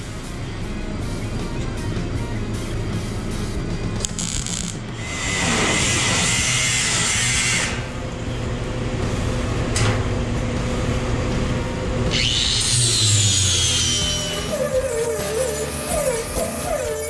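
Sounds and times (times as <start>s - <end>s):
grinder whine dropping in pitch: 4.0s - 5.4s, 11.3s - 17.0s
die grinder grinding metal: 4.0s - 7.8s, 12.1s - 17.0s.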